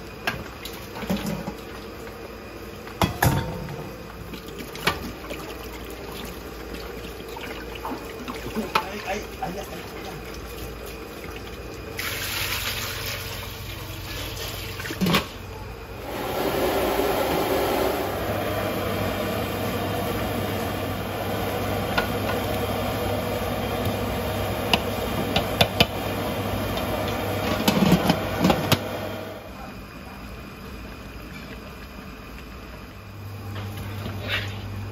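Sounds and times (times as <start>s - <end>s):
water pouring into metal pot: 4.4s - 15.0s.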